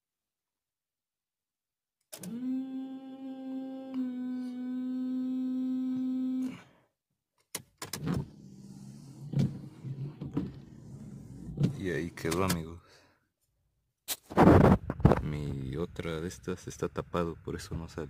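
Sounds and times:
rough mechanical sound: 8.0 - 12.7.

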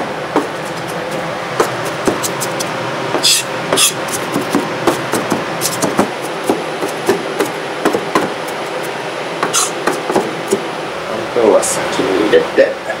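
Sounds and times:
knife chopping on wooden board: 0.4 - 10.6.

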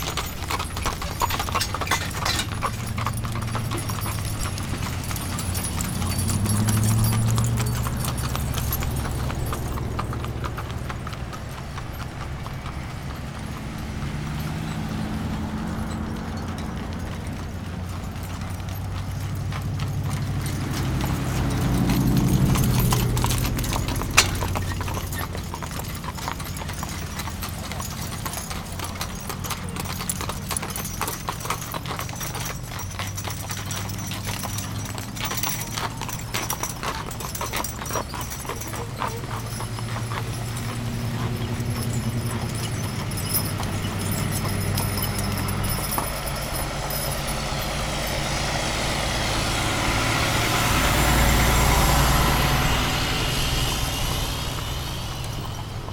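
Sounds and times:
hooves clip-clopping on pavement: 0.0 - 55.9
low vehicle drone: 0.0 - 55.9.

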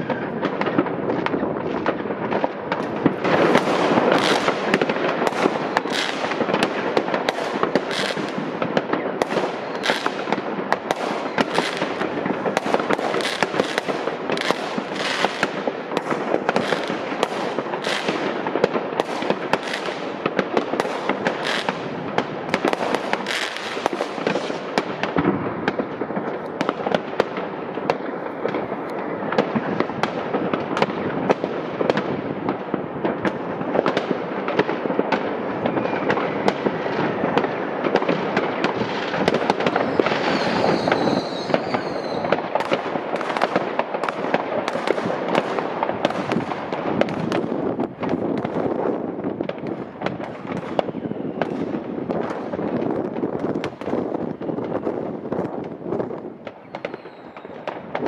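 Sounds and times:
fireworks bangs and crackling: 0.0 - 58.0
high firework whistle: 3.4 - 6.6, 7.2 - 18.4, 35.6 - 37.4, 39.2 - 42.7, 50.6 - 51.7, 56.6 - 57.7.

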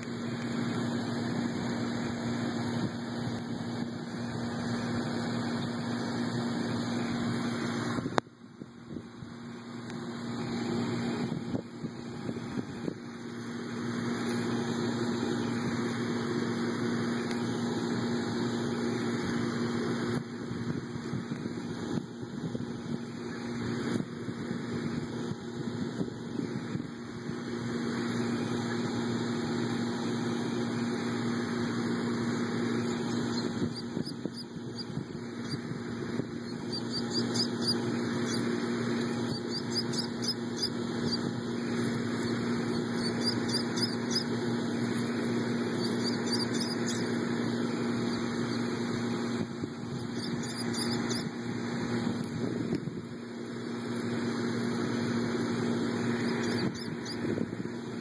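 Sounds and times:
motor hum: 0.0 - 58.0
high bird chirps: 36.4 - 38.4, 39.2 - 41.2, 42.2 - 44.3, 45.8 - 47.1, 50.0 - 51.3, 56.2 - 57.2.

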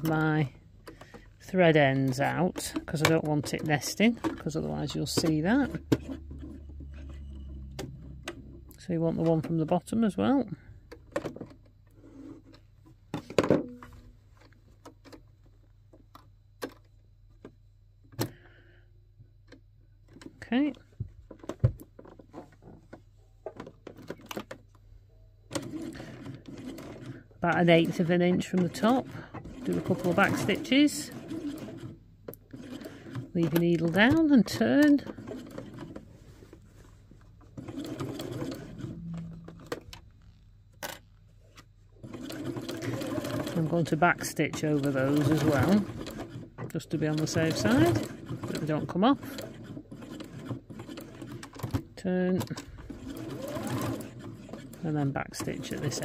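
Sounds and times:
hands clicking on sewing machine: 0.0 - 6.5, 25.5 - 36.0, 42.0 - 56.0
low steady hum: 0.0 - 24.0, 25.9 - 47.8.

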